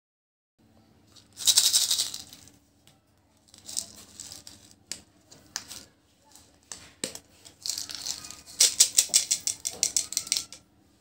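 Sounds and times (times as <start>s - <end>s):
candies rattling in plastic egg: 1.1s - 2.6s, 3.4s - 6.5s, 7.1s - 10.6s.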